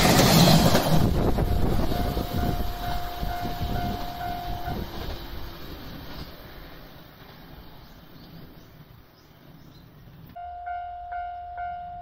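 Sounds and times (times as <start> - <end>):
electric train rushing past: 0.0 - 12.0
train horn: 1.2 - 5.0, 10.4 - 12.0.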